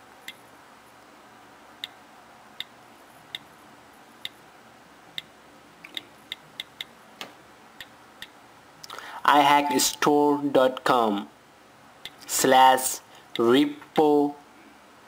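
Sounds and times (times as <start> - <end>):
on-screen keyboard ticks: 1.8 - 2.0, 5.2 - 6.9.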